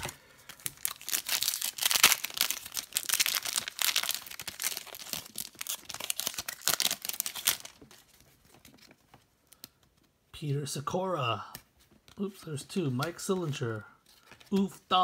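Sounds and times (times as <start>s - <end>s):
wrapper crinkling and tearing: 0.0s - 8.9s.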